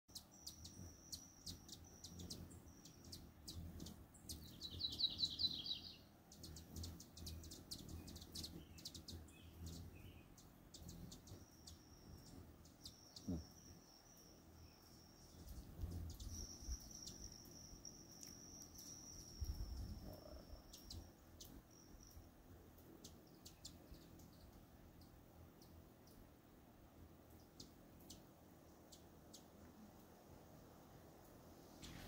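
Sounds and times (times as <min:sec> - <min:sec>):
hummingbird chip notes: 0:00.1 - 0:30.0
thin high buzzing trill: 0:11.1 - 0:22.4.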